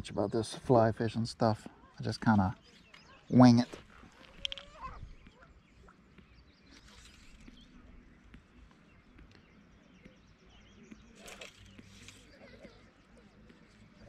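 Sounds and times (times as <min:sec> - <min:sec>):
faint bird chirps: 0:01.7 - 0:14.0
brief rustle: 0:02.7 - 0:05.0, 0:06.6 - 0:07.9, 0:11.2 - 0:12.8.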